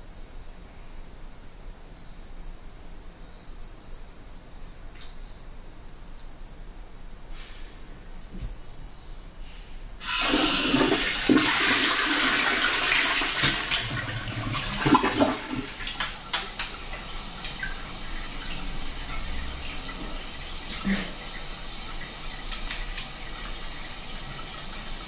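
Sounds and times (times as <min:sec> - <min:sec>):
toilet flushing: 0:10.0 - 0:25.0.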